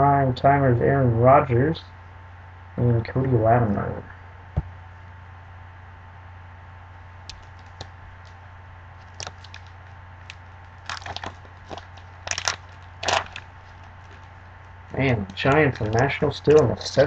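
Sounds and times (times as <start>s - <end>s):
low hum: 0.0s - 17.0s
foil wrapper crinkling and tearing: 9.0s - 17.0s.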